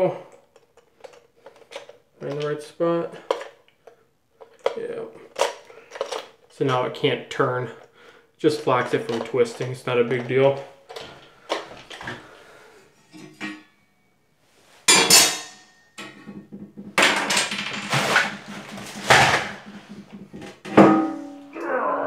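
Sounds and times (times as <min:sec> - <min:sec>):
plastic toilet parts knocking: 0:08.5 - 0:12.3, 0:15.0 - 0:21.5.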